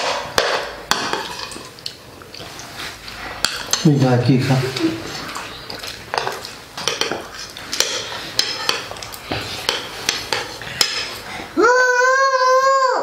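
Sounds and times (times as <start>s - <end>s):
spoons clinking on ceramic plates: 0.0s - 2.0s, 3.4s - 4.2s, 4.8s - 11.2s.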